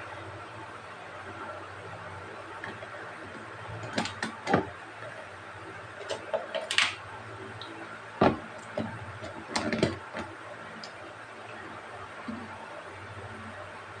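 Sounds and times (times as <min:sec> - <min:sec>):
plastic container clicks and knocks: 0:08.2 - 0:10.3.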